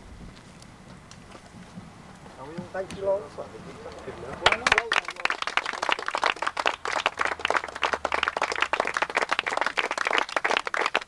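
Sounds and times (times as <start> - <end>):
people clapping: 3.9 - 11.0.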